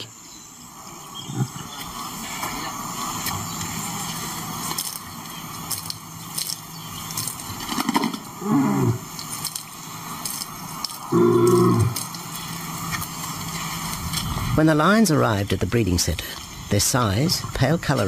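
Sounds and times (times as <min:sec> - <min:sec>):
lion grunting call: 0:01.2 - 0:02.7, 0:08.3 - 0:09.2, 0:11.1 - 0:12.1.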